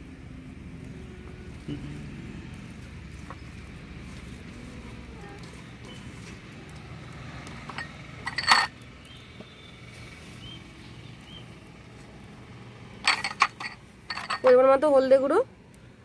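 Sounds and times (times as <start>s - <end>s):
glass bowls clinking: 7.7s - 8.8s, 13.0s - 14.6s.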